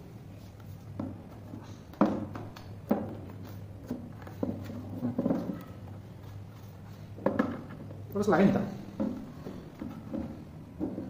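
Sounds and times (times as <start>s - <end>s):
rustling and clatter: 0.4s - 7.9s
plastic parts knocking: 1.9s - 5.7s, 7.2s - 7.8s, 8.9s - 11.0s.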